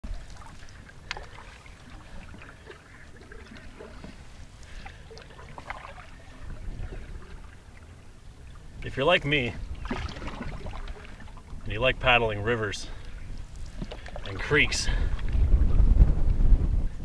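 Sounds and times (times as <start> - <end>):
small water splashes and drips: 0.0 - 9.0, 9.6 - 11.8, 12.8 - 15.4
canoe paddle pulling through water: 0.0 - 16.8.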